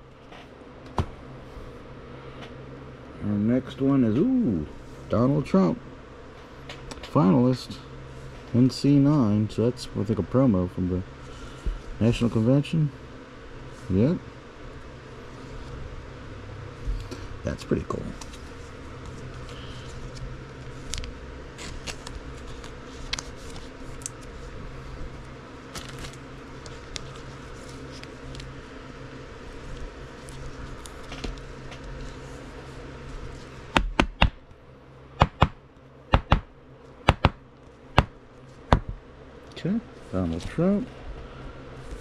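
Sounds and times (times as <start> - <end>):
low background hum: 0.0 - 42.0
cards rustling: 17.8 - 28.7.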